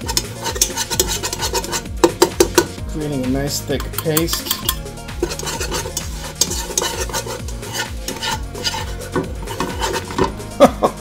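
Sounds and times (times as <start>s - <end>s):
wire whisk scraping a pan: 0.0s - 2.8s, 3.7s - 10.4s.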